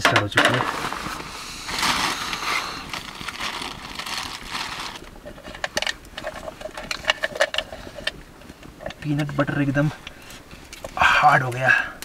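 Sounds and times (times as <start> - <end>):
rustling hiss: 0.6 - 12.0.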